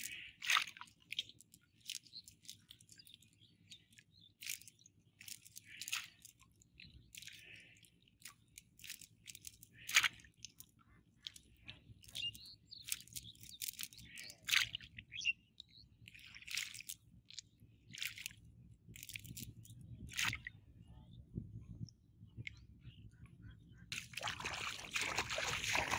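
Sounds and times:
wet net and weeds rustling: 24.0 - 25.9.

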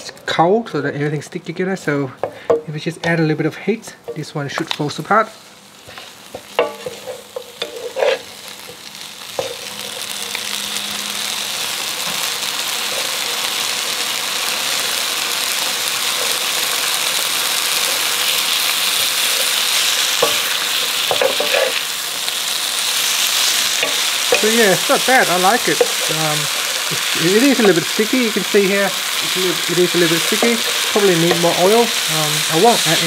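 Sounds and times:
food sizzling in a frypan: 2.2 - 33.0
wooden spatulas knocking and scraping: 6.3 - 8.2, 21.1 - 21.8.

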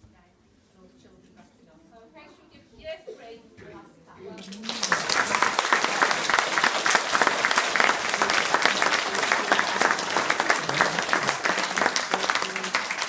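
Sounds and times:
children applauding: 4.4 - 13.0.

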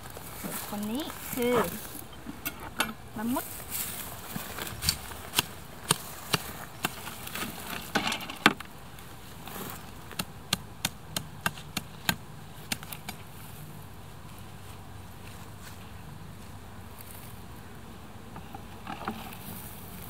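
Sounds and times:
machete chopping weeds: 4.6 - 7.9, 9.6 - 13.2.

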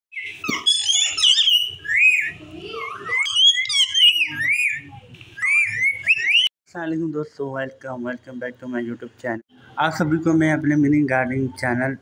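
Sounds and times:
parakeets chirping: 0.1 - 6.5.

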